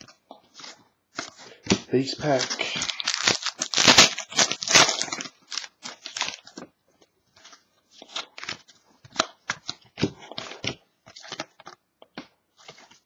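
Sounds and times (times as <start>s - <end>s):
cards rustling and clicking: 0.0s - 13.0s
wrapper crinkling as torn open: 2.2s - 6.6s.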